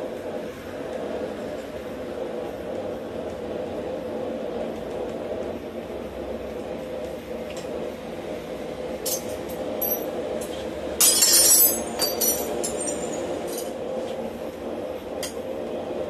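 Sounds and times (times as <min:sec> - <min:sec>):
steel bar clinking against anvil: 0:11.0 - 0:13.7
loud ringing metallic clatter: 0:11.0 - 0:13.8.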